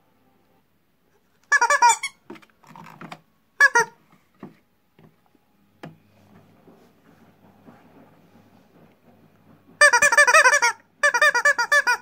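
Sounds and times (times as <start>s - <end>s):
rubber squeeze toy squeaking: 1.4s - 3.0s, 3.6s - 4.0s, 9.8s - 12.0s.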